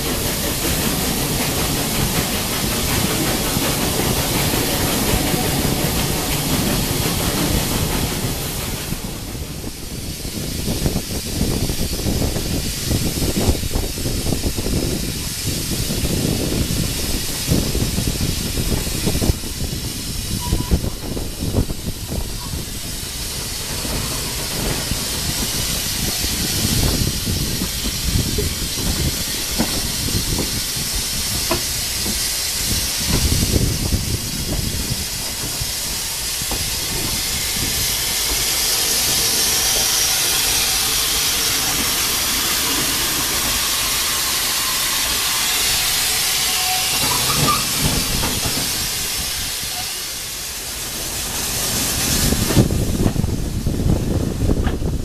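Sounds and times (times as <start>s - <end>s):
carriage wheels rumbling on rails: 0.0s - 9.0s, 46.6s - 48.9s
steam locomotive hissing: 0.0s - 55.0s.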